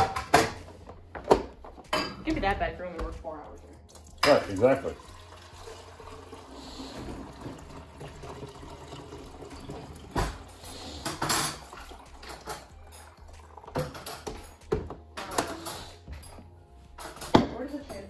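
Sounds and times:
dishes knocking and clinking: 0.0s - 3.1s, 9.6s - 18.0s
water running in sink: 3.9s - 14.6s.

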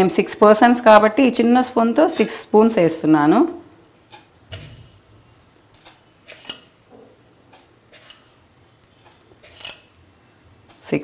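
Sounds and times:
spoon scooping sugar: 1.8s - 3.3s, 3.9s - 6.8s, 7.5s - 10.0s.

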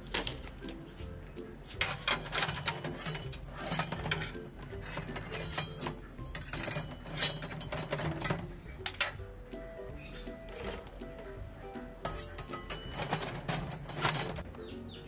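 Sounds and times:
soft background music: 0.0s - 15.0s
metal skimmer clinking against eggs: 1.8s - 9.2s, 12.0s - 14.4s.

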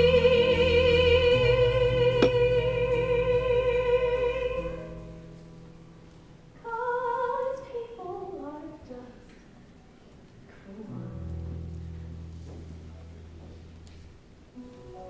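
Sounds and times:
woman singing: 0.0s - 5.0s, 6.6s - 9.2s.

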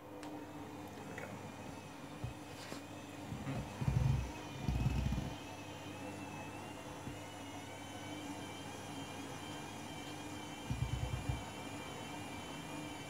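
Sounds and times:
washing machine motor whine: 0.0s - 13.0s
low hum: 10.6s - 11.5s.

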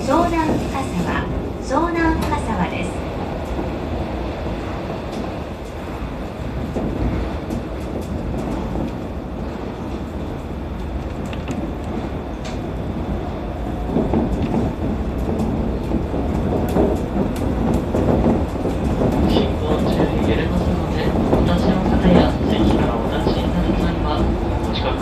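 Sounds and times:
monorail running rumble: 0.0s - 25.0s.

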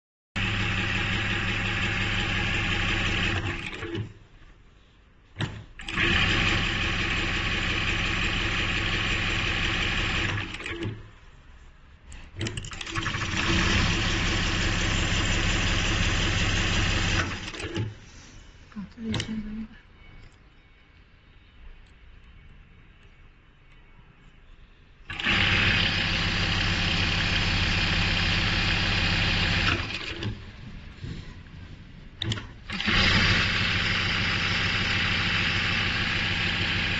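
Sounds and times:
sewing machine stitching: 0.4s - 4.2s, 5.4s - 11.1s, 12.1s - 18.0s, 25.1s - 30.6s, 32.2s - 36.9s.

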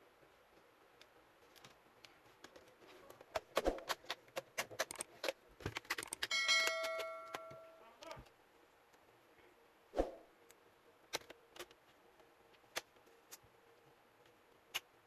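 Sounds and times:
bell-like notification ding: 6.3s - 7.8s.

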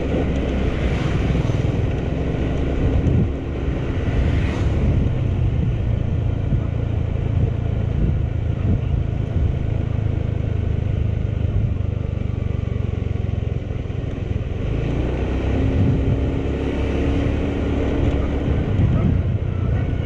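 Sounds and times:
motorcycle engine rumble: 0.0s - 20.0s
road and wind noise: 0.0s - 20.0s.

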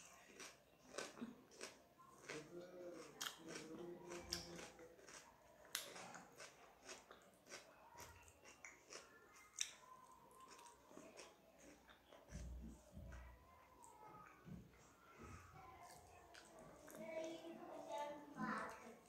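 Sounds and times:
chewing and mouth smacks: 0.2s - 12.5s, 15.9s - 17.0s.

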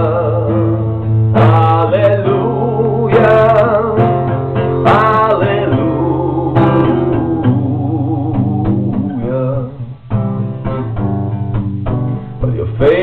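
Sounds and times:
strummed acoustic guitar: 0.0s - 13.0s
man singing a held note: 4.8s - 9.9s.

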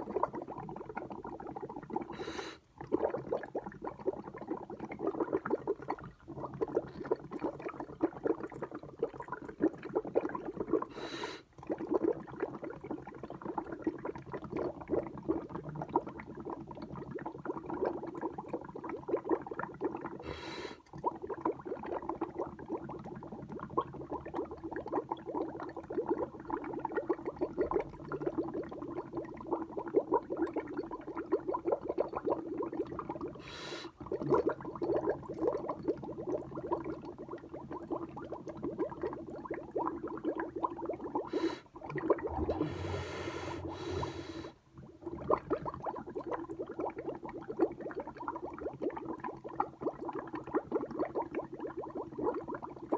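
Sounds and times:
bubbles blown through straw in milk: 0.0s - 52.9s
sharp breath through nose: 2.2s - 2.6s, 10.9s - 11.5s, 20.2s - 20.8s, 33.4s - 34.0s, 41.3s - 41.7s, 42.6s - 44.6s.

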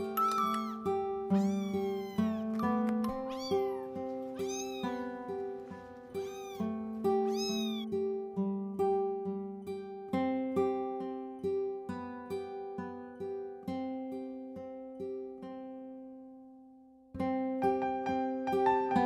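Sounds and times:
plucked string music: 0.0s - 14.4s
kitten meowing: 0.2s - 5.2s, 6.1s - 8.0s.

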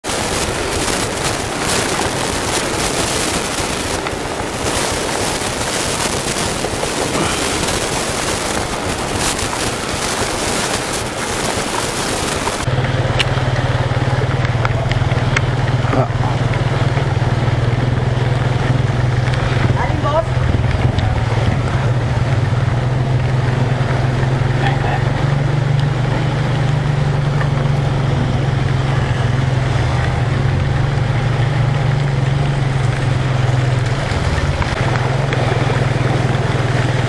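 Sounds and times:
rain: 0.0s - 37.0s
scooter engine humming: 0.0s - 37.0s
plastic bag crinkling: 0.1s - 12.7s.

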